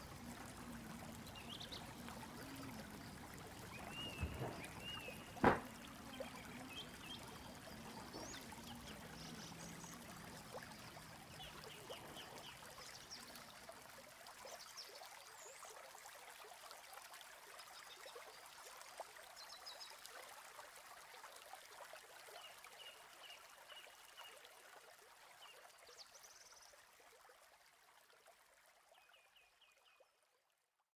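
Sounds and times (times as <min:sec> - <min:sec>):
water trickling: 0:00.0 - 0:30.4
sharp knock: 0:05.4 - 0:05.8.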